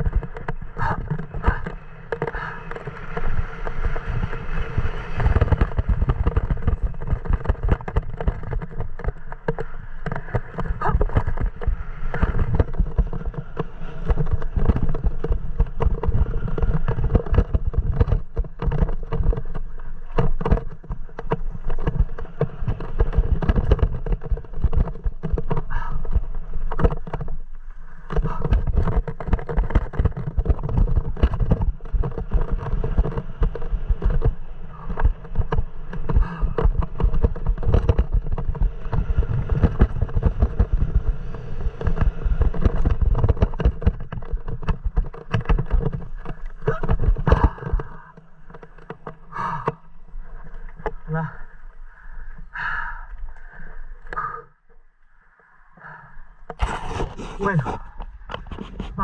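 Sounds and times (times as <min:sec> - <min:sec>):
wind buffeting microphone: 0:00.0 - 0:19.6
bike knocks and rattles: 0:00.0 - 0:51.4
tyres rumbling over dirt: 0:00.0 - 0:53.0, 0:55.8 - 0:59.0.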